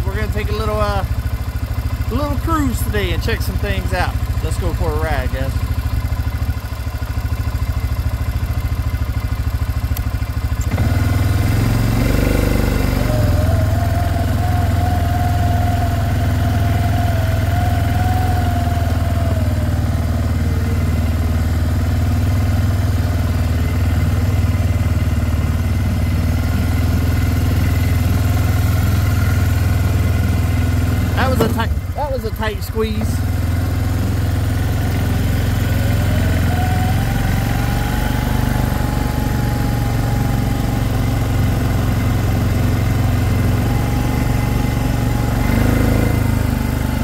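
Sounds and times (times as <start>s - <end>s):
atv engine running: 0.0s - 47.0s.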